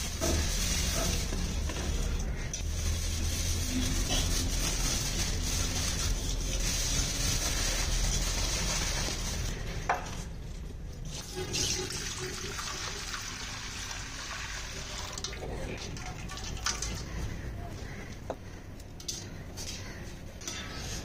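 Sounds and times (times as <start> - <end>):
water pouring into metal pot: 11.2 - 17.1.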